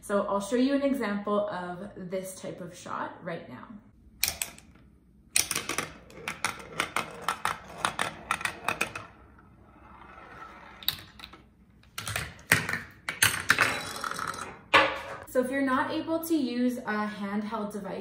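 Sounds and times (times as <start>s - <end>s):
ball rolling along plastic chute: 5.4s - 15.2s.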